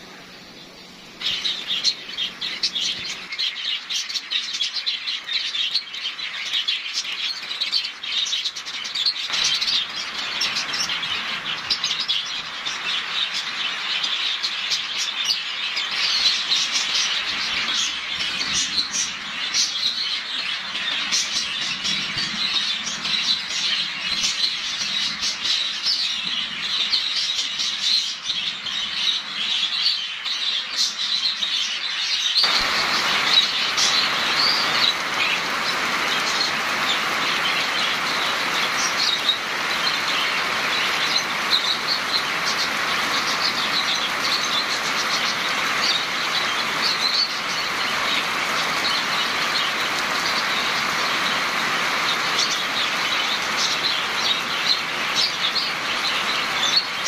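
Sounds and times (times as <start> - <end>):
birds chirping: 0.0 - 57.0
rain falling: 9.2 - 29.8, 32.4 - 57.0.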